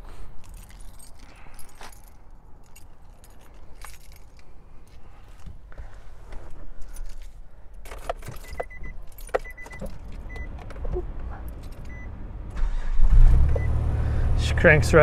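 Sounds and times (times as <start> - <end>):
keys jangling in ignition: 0.3 - 5.7, 6.6 - 12.9.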